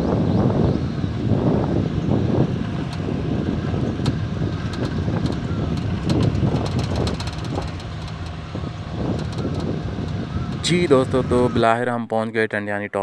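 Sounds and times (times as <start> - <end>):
wind buffeting microphone: 0.0 - 11.9
vehicle rumbling on dirt road: 0.0 - 12.0
sharp clicks: 4.0 - 10.7.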